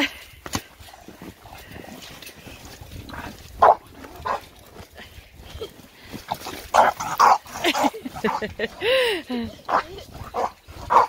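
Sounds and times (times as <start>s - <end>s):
dogs play-fighting: 3.0s - 4.9s, 6.2s - 11.0s.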